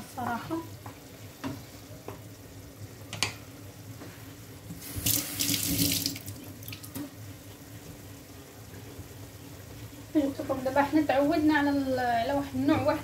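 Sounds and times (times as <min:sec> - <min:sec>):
water splashing into sink: 0:04.8 - 0:07.1.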